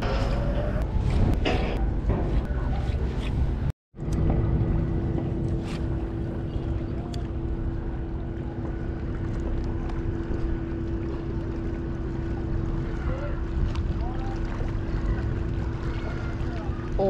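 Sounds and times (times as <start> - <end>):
steady low drone: 0.0 - 17.0
wind rumbling on microphone: 0.0 - 17.0.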